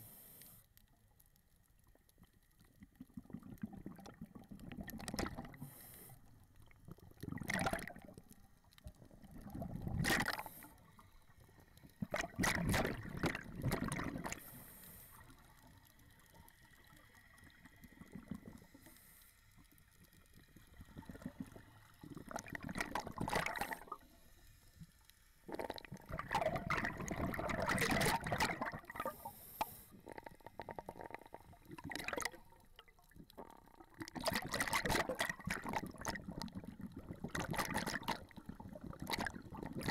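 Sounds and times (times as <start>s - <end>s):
underwater bubbles gurgling: 0.8s - 39.9s
regulator inhalation hiss: 29.1s - 30.0s.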